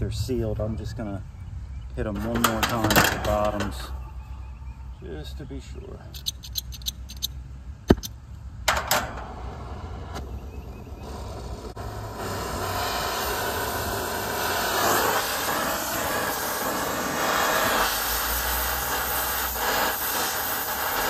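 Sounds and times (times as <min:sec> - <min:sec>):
torch flame hissing: 0:09.4 - 0:21.0.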